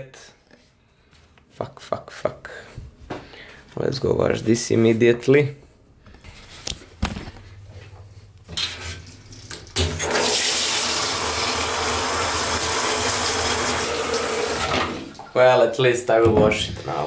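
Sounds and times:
hand shower spraying water: 0:10.0 - 0:15.1.

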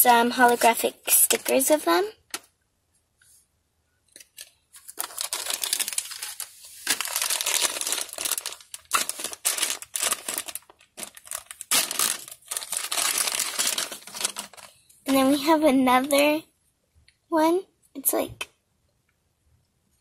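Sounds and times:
foil bag crinkling and tearing: 0:04.3 - 0:16.1.

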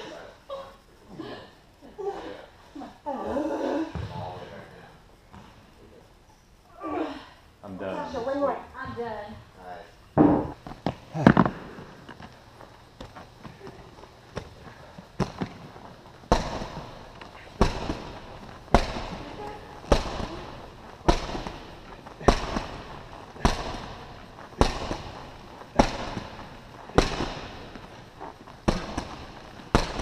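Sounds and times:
medicine ball thudding against wall: 0:10.2 - 0:10.6, 0:17.6 - 0:27.6, 0:28.6 - 0:30.0.

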